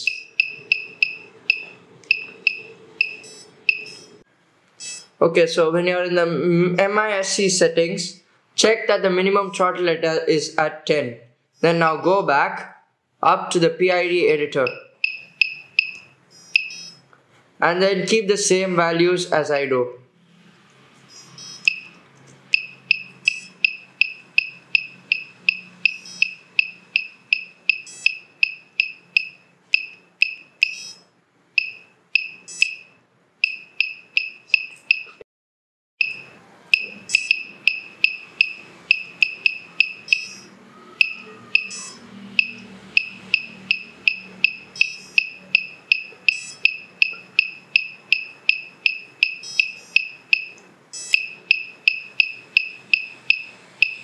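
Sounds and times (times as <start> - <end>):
short high buzzer beeps: 0.0 - 4.2, 14.7 - 17.1, 21.1 - 35.2, 36.0 - 54.0.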